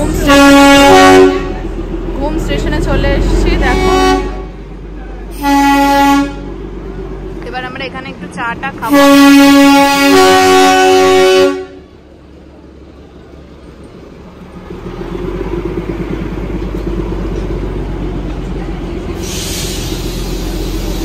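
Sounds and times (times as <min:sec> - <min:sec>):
train low rumble: 0:00.0 - 0:21.0
toy train horn: 0:00.2 - 0:01.6, 0:03.7 - 0:04.4, 0:05.4 - 0:06.4, 0:08.9 - 0:11.8
burst of hiss: 0:19.2 - 0:21.0.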